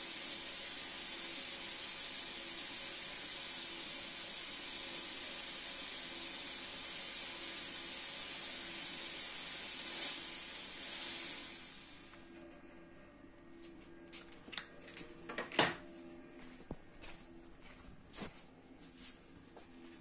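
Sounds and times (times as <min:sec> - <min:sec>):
fog machine hissing: 0:00.0 - 0:12.4.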